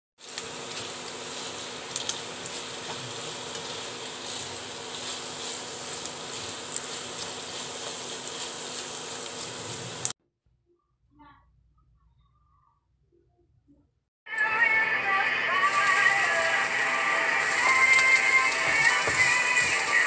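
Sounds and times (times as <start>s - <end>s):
meat sizzling in hot oil: 0.2s - 10.2s, 15.6s - 20.0s.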